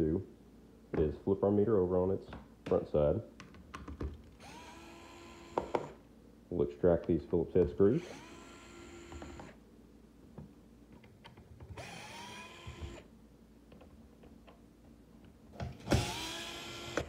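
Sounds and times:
cordless screwdriver whining: 0:04.4 - 0:06.0, 0:08.0 - 0:09.6, 0:11.8 - 0:13.1, 0:15.9 - 0:17.0.

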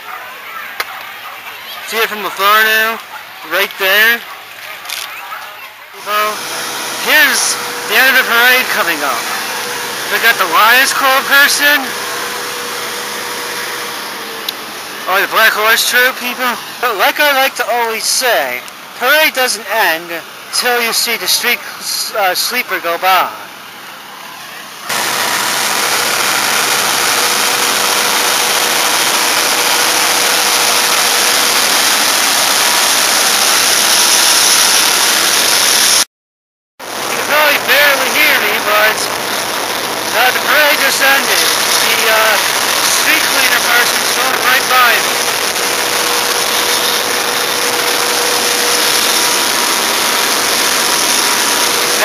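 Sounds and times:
faint whine: 0:06.0 - 0:19.4, 0:36.9 - 0:52.0
street sweeper rushing hiss: 0:06.0 - 0:24.0, 0:24.8 - 0:36.0, 0:36.9 - 0:52.0.

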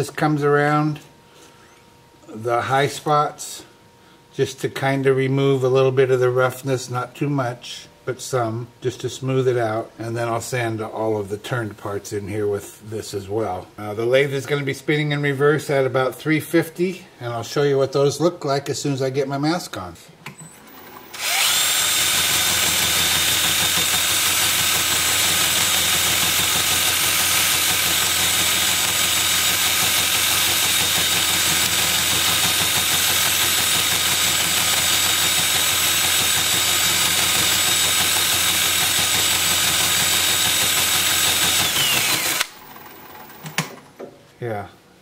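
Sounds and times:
drill motor whine: 0:20.7 - 0:43.5.

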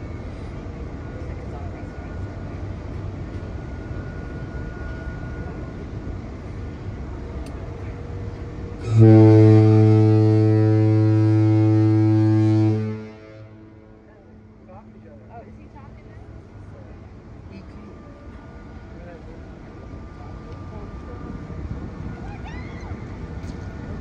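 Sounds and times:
ship's horn blast: 0:08.4 - 0:15.0.

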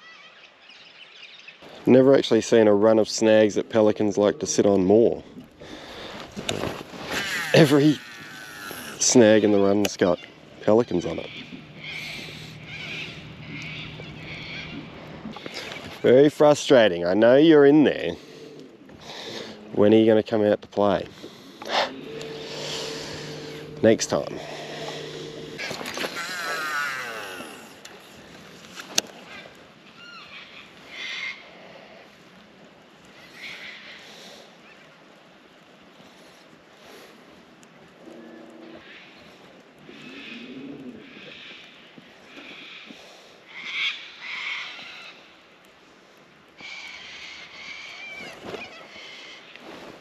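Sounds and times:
harsh animal calls: 0:07.0 - 0:16.3, 0:17.4 - 0:19.8, 0:21.1 - 0:28.2, 0:39.8 - 0:45.2
fishing reel spool whirring: 0:07.1 - 0:16.1, 0:17.4 - 0:19.7, 0:21.1 - 0:28.4.

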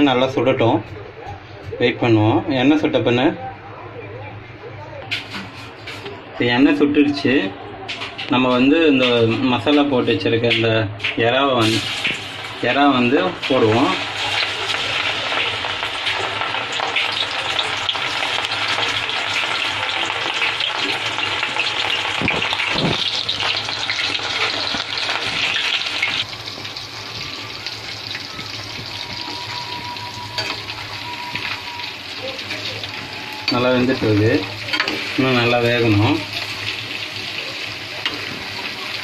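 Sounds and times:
prawns sizzling in hot oil: 0:11.6 - 0:39.0.

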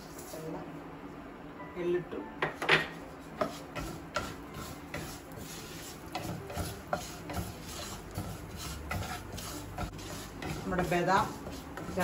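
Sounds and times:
spatula scraping frying pan: 0:03.3 - 0:12.0
seeds sizzling in ghee: 0:03.4 - 0:12.0.

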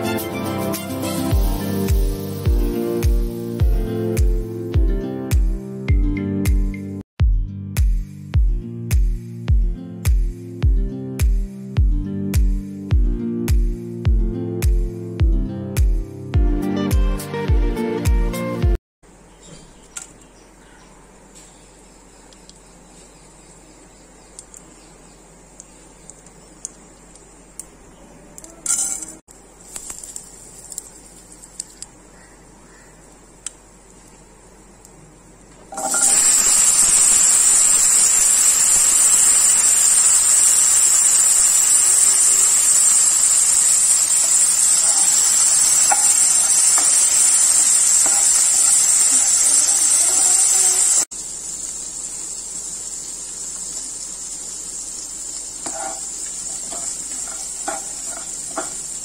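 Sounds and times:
chickpeas sizzling in a pan: 0:00.9 - 0:03.6, 0:28.6 - 0:31.8, 0:35.7 - 0:59.0
hot oil crackling and popping: 0:01.3 - 0:03.6, 0:29.6 - 0:32.0, 0:35.6 - 0:59.0.

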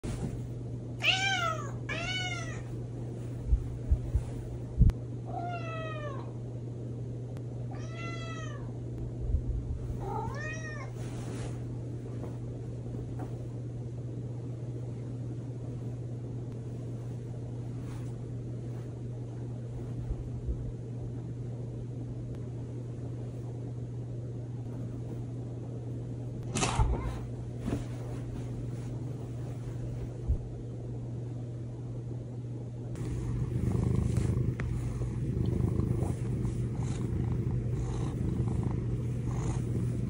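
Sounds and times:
steady low hum: 0:00.0 - 0:40.0
cat meowing: 0:07.7 - 0:08.7, 0:10.0 - 0:10.9.

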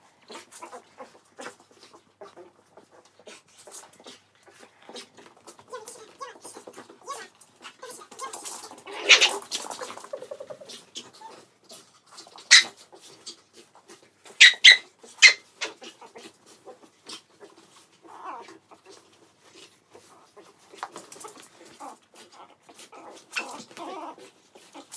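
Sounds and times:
dog claws scratching on floor: 0:00.3 - 0:10.2, 0:18.9 - 0:24.9.

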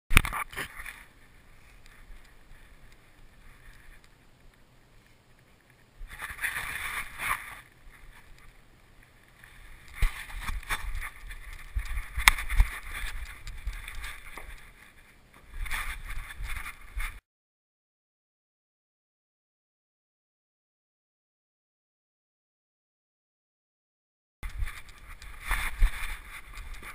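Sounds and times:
rustling: 0:00.2 - 0:17.2, 0:24.4 - 0:26.9
camera strap rubbing and knocking: 0:09.9 - 0:14.8, 0:24.4 - 0:26.9.

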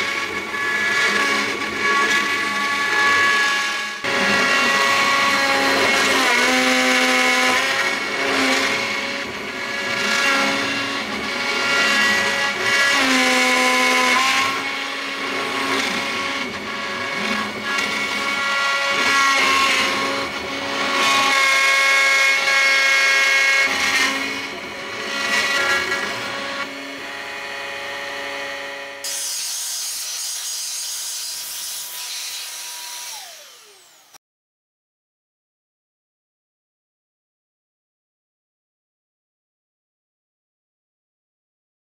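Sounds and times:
bit cutting wood: 0:00.0 - 0:34.2
engraving machine spindle running: 0:32.7 - 0:34.2.

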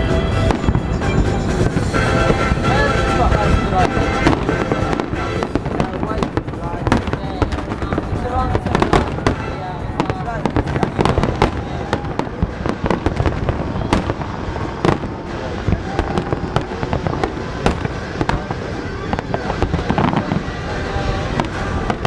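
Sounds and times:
firework shells bursting: 0:00.0 - 0:22.0
rumble of distant detonations: 0:00.0 - 0:22.0.

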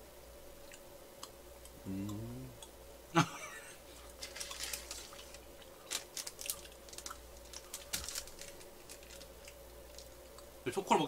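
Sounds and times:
faint steady hum: 0:00.0 - 0:11.0
chewing crunches: 0:04.0 - 0:10.5.

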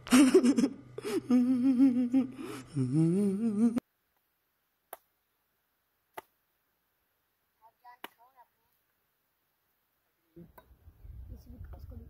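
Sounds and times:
low steady drone: 0:00.0 - 0:03.8
man humming a tune: 0:00.1 - 0:03.8.

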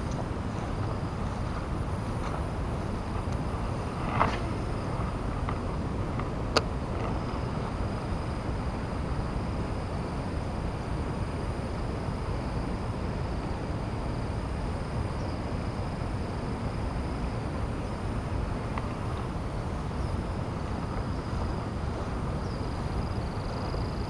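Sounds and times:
faint high whine: 0:00.0 - 0:24.0
low outdoor rumble: 0:00.0 - 0:24.0.

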